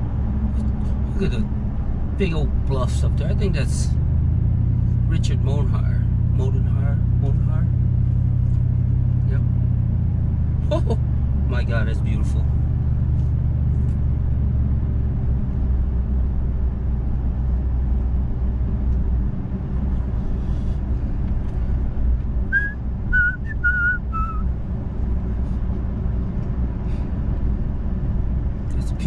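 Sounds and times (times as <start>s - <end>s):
car engine and road noise: 0.0s - 29.0s
person whistling: 22.5s - 24.4s.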